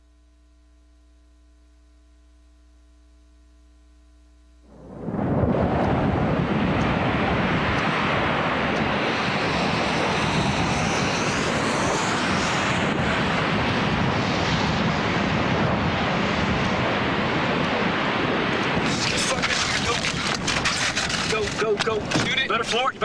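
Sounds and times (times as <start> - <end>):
strong wind roaring: 4.6 - 23.0.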